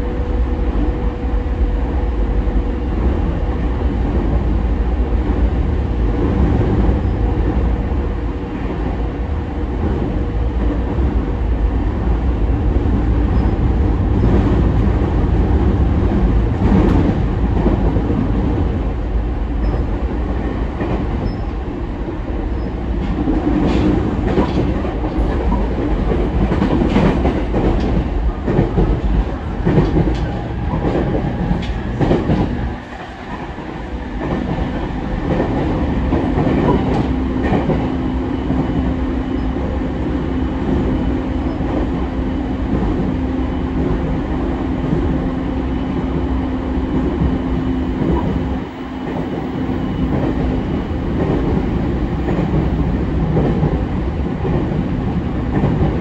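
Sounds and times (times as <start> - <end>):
train wheels on rails: 0.0 - 56.0
train clatter: 12.8 - 18.8, 22.6 - 45.3, 46.9 - 56.0.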